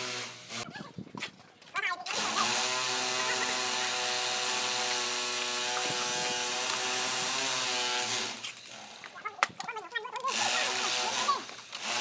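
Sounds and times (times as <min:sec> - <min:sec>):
small motor running: 0:02.1 - 0:09.1, 0:10.2 - 0:12.0.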